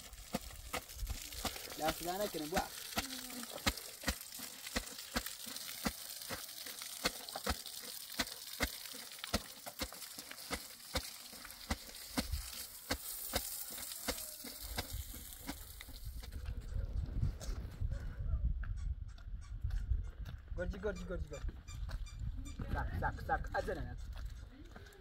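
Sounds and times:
hose spraying water on wall: 0:00.0 - 0:16.3.

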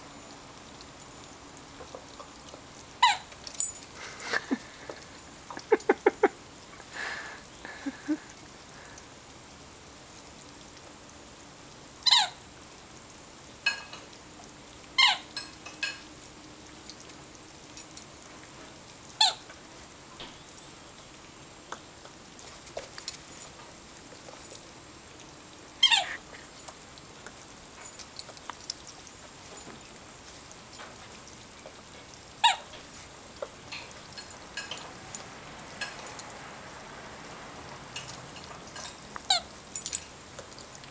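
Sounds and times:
squeak toy squeaking: 0:12.1 - 0:12.4, 0:15.0 - 0:15.3, 0:25.8 - 0:26.2.

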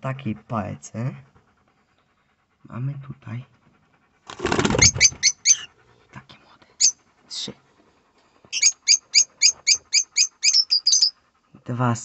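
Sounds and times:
high-pitched bird chirps: 0:04.8 - 0:05.7, 0:08.5 - 0:11.2.

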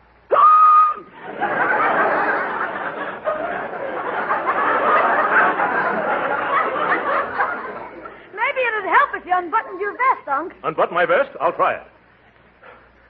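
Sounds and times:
audience laughing: 0:01.0 - 0:08.4.

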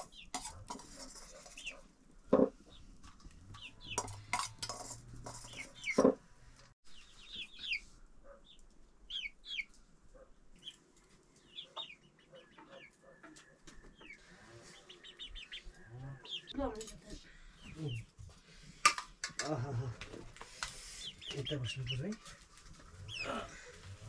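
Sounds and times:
chickens clucking: 0:00.0 - 0:06.2, 0:10.5 - 0:24.0
kitchen utensils clattering: 0:03.7 - 0:06.2.

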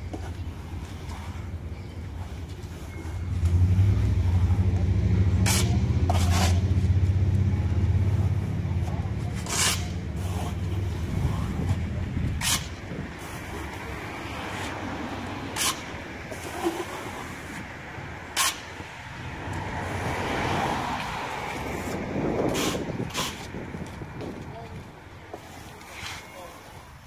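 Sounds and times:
traffic rumble: 0:00.0 - 0:27.0
trowel scraping stucco: 0:05.4 - 0:06.9, 0:08.0 - 0:17.6, 0:18.3 - 0:18.8, 0:21.5 - 0:23.6.

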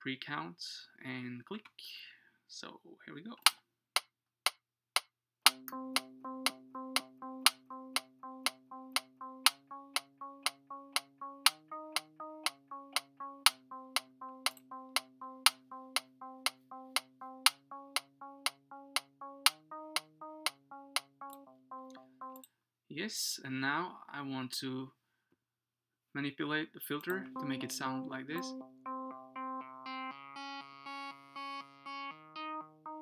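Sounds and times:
metronome clicking: 0:05.0 - 0:22.5, 0:27.0 - 0:33.0
synth melody of short notes: 0:05.5 - 0:22.4, 0:27.0 - 0:33.0.

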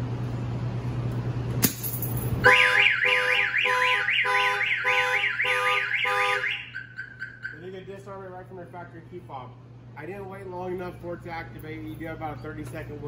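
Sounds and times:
car alarm siren warbling: 0:02.4 - 0:07.9.

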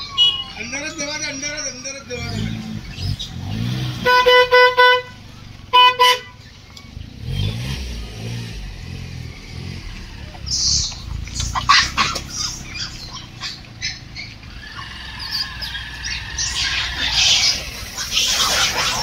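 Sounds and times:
high squawking animal calls: 0:09.4 - 0:19.0.

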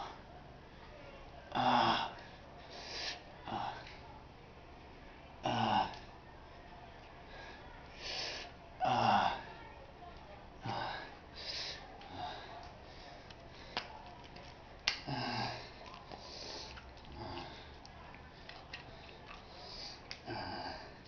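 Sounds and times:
man grunting and breathing: 0:01.5 - 0:02.2, 0:15.0 - 0:15.7.

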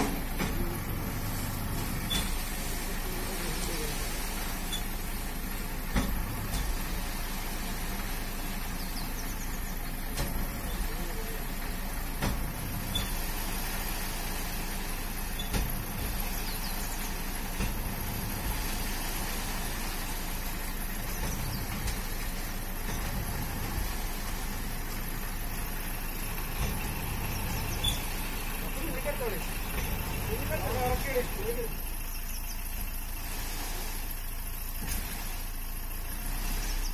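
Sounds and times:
truck engine running: 0:00.0 - 0:36.9
sand sliding onto a pile: 0:33.0 - 0:36.8.

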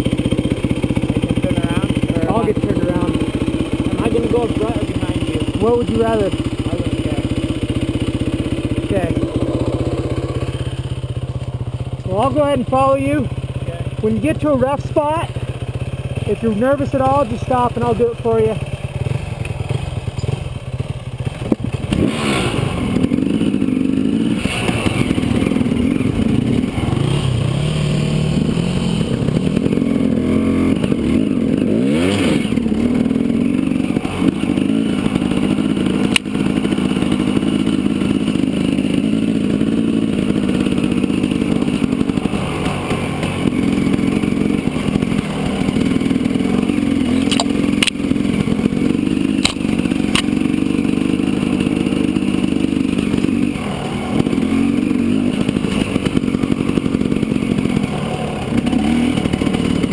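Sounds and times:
dirt bike engine running: 0:00.0 - 0:59.9
sharp clicks: 0:47.2 - 0:48.0, 0:49.4 - 0:50.4.

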